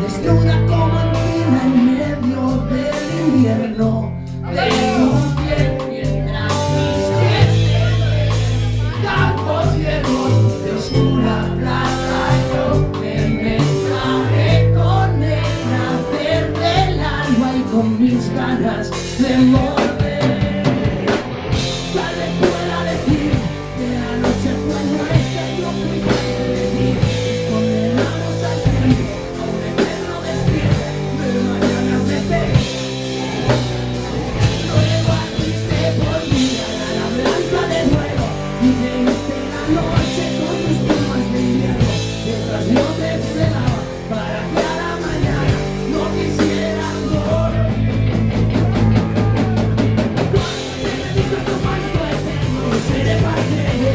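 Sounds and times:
drum kit with cymbals: 0:00.0 - 0:53.9
electric guitars: 0:00.0 - 0:53.9
man singing into microphone: 0:00.0 - 0:53.9.

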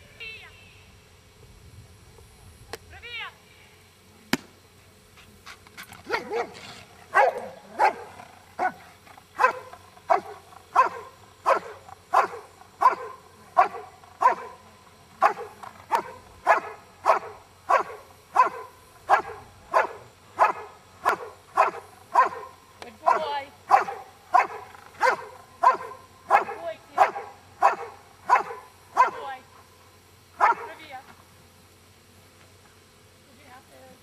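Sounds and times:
large dog barking: 0:06.0 - 0:14.6, 0:15.2 - 0:29.3, 0:30.4 - 0:30.8.

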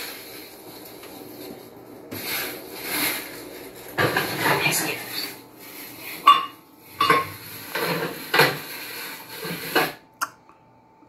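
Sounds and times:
dishes and cutlery clinking: 0:06.1 - 0:08.7.

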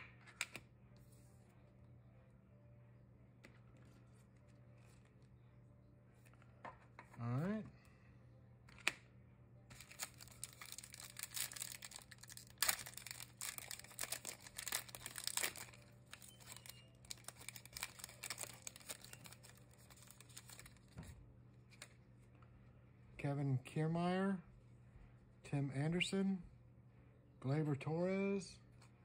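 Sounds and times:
foil wrapper crinkling: 0:09.7 - 0:21.0.

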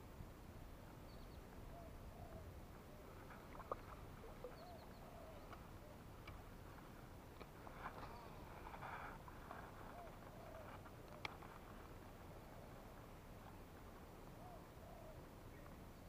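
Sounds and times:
faint bird calls: 0:01.0 - 0:06.4, 0:07.6 - 0:11.6, 0:14.3 - 0:16.0.

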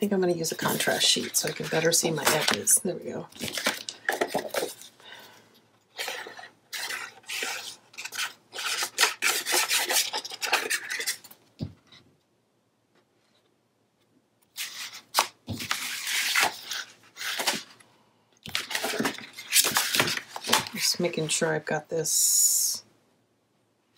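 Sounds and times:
paper rustling: 0:00.5 - 0:05.0, 0:05.9 - 0:11.4, 0:14.5 - 0:17.8, 0:18.5 - 0:21.5.

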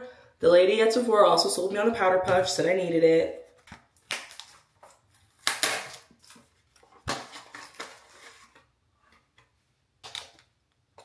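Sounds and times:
plastic packaging rustling: 0:03.5 - 0:08.8.

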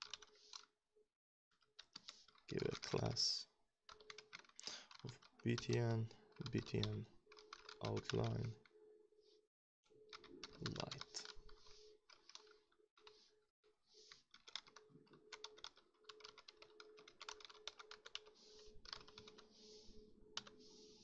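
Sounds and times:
typing on a computer keyboard: 0:00.0 - 0:00.7, 0:03.9 - 0:08.7, 0:10.1 - 0:13.2, 0:14.1 - 0:19.5, 0:20.3 - 0:20.6.

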